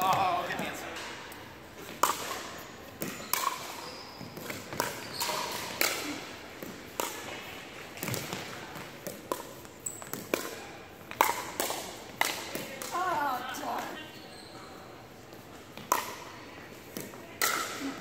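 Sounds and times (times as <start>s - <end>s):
ball bouncing on hardwood court: 1.9s - 13.2s.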